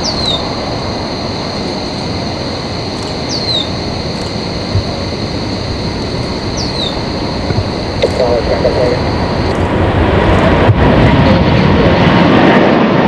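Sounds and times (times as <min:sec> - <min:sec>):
bird whistling: 0:00.0 - 0:00.5, 0:03.0 - 0:04.3, 0:06.4 - 0:07.1
jet engines at takeoff: 0:00.0 - 0:13.0.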